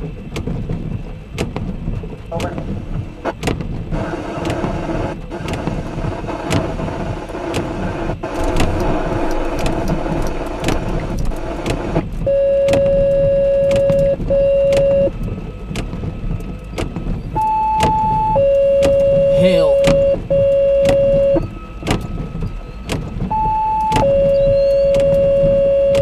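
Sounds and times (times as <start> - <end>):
rain hissing: 0.2 - 14.3
long electronic beeps: 17.4 - 21.7, 23.3 - 26.0.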